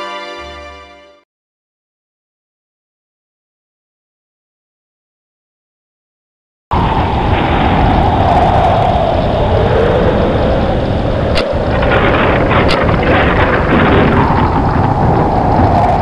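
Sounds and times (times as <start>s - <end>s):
wind howling: 6.7s - 16.0s.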